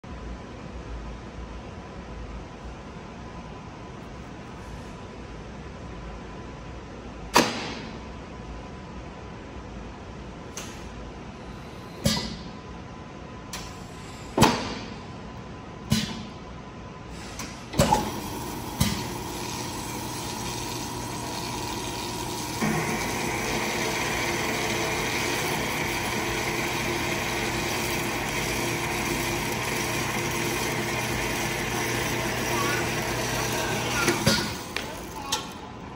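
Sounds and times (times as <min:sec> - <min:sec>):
bandsaw humming: 0:18.2 - 0:35.2.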